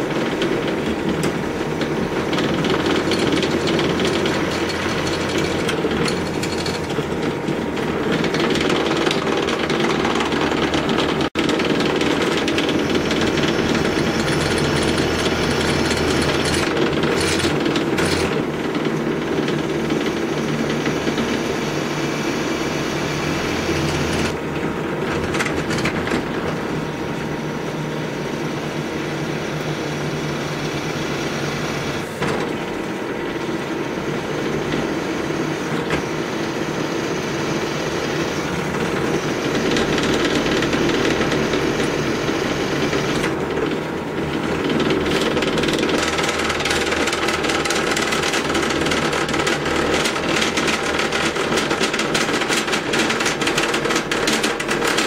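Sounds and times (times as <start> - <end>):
drill press cutting through steel: 0.0 - 24.5.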